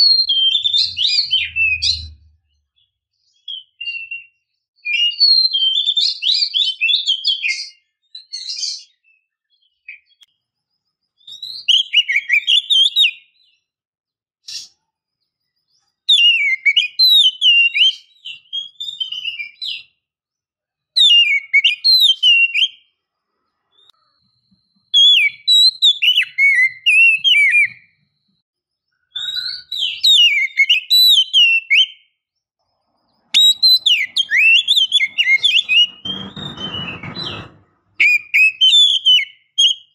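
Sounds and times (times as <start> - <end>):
bird singing whistled phrases: 0.0 - 10.2, 11.2 - 13.6, 16.1 - 19.9, 21.0 - 22.9, 24.9 - 28.3, 29.0 - 32.2, 33.3 - 37.3, 38.0 - 39.9.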